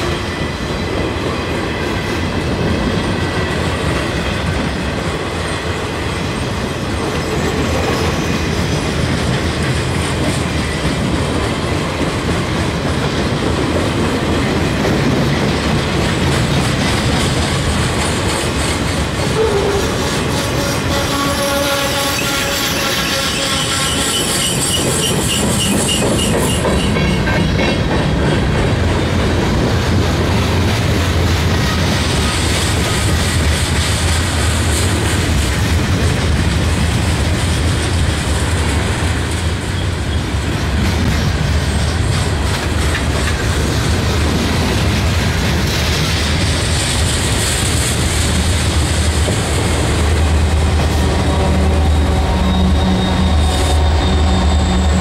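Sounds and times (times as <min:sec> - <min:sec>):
train wheels clattering on rails: 0:00.0 - 0:55.0
high-pitched wheel squeal: 0:19.4 - 0:26.9, 0:51.2 - 0:55.0.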